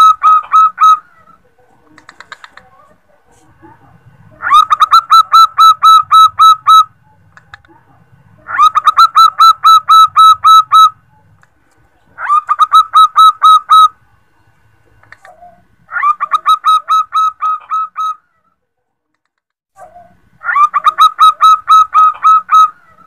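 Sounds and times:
dove calling in rapid chirps: 0:00.0 - 0:02.9, 0:04.4 - 0:07.7, 0:08.4 - 0:11.4, 0:12.0 - 0:14.0, 0:15.0 - 0:18.4, 0:19.8 - 0:23.0.

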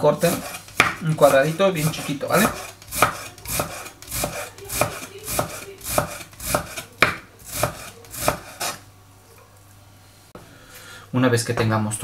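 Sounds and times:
knife chopping on wooden board: 0:00.2 - 0:08.8.

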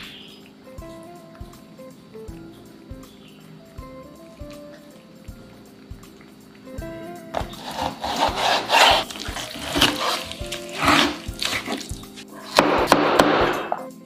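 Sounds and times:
background music: 0:00.0 - 0:14.0
knife slicing on chopping board: 0:07.4 - 0:13.8
knife blade knocking on board: 0:12.6 - 0:13.8.

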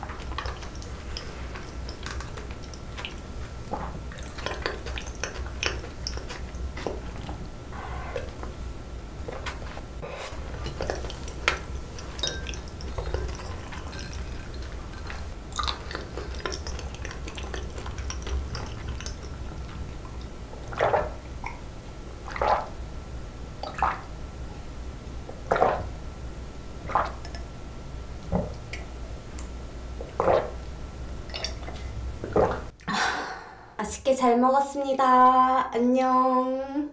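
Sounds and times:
person chewing: 0:12.8 - 0:18.4.

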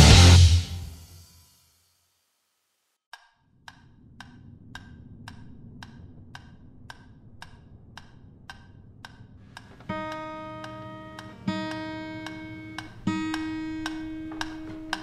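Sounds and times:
quiet steady ticking: 0:03.1 - 0:15.0.

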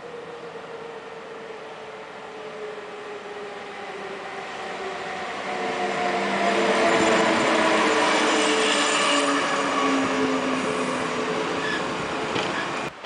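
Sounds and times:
train wheels on rails: 0:02.6 - 0:13.0.

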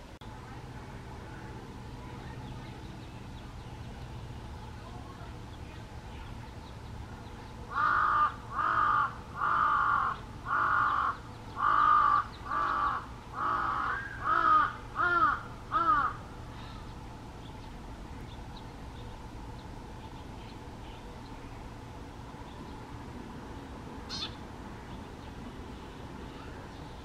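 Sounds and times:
crow cawing: 0:07.7 - 0:16.8.

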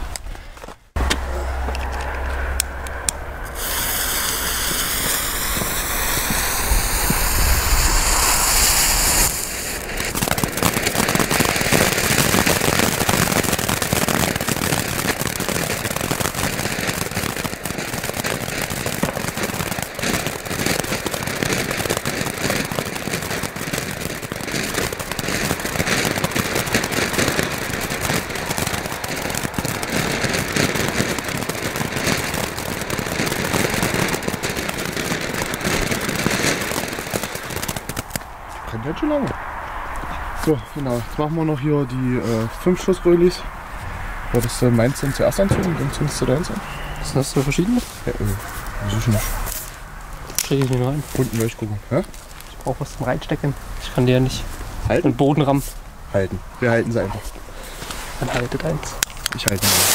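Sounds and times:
fuse hissing: 0:03.5 - 0:10.0, 0:59.6 - 0:59.9
firework fountain crackling hiss: 0:03.5 - 0:38.3, 0:44.4 - 0:59.9.

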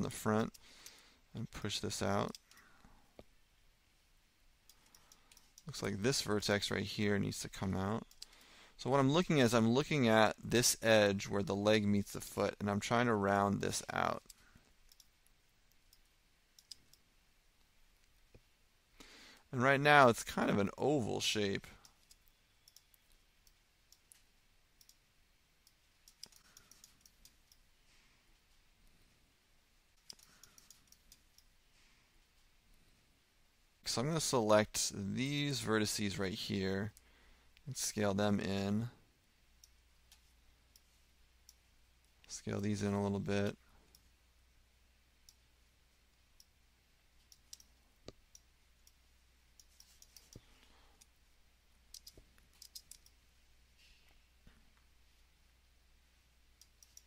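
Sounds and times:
computer mouse clicks: 0:04.7 - 0:05.8, 0:08.0 - 0:08.5, 0:14.2 - 0:17.1, 0:21.8 - 0:25.0, 0:25.6 - 0:27.7, 0:30.0 - 0:31.5, 0:47.2 - 0:49.0, 0:49.6 - 0:51.2, 0:51.9 - 0:53.2, 0:56.6 - 0:57.0
mouse and keyboard clicks: 0:30.0 - 0:31.5, 0:49.6 - 0:51.1, 0:51.9 - 0:53.2.

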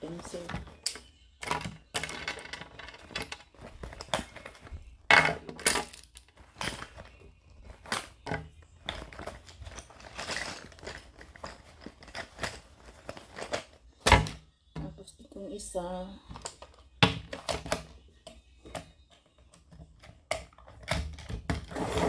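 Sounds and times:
pencils clicking and clattering: 0:00.0 - 0:14.0
rustling: 0:06.2 - 0:13.9.

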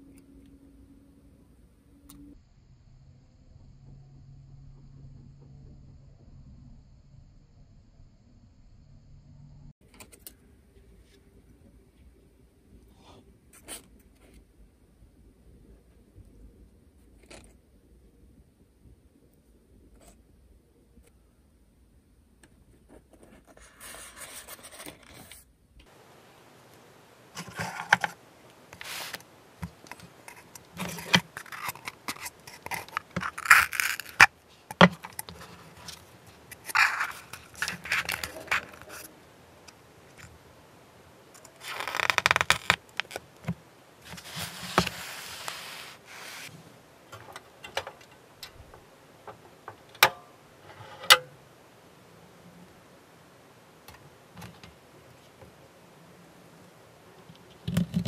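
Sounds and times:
scraping and rustling of plastic parts: 0:27.3 - 0:40.4, 0:41.3 - 0:49.8.

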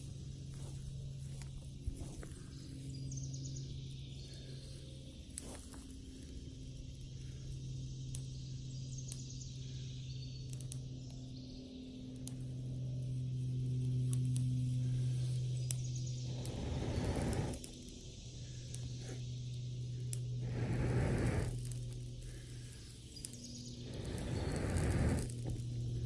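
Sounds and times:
grass burning with crackles: 0:00.0 - 0:26.0
steady low hum: 0:00.0 - 0:26.0
breath blowing into fire: 0:16.2 - 0:17.8, 0:20.0 - 0:26.0.

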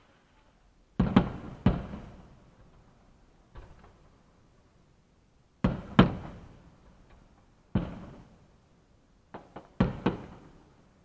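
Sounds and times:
fireworks bursting: 0:01.0 - 0:02.6, 0:05.6 - 0:07.1, 0:07.7 - 0:08.5, 0:09.3 - 0:10.8.

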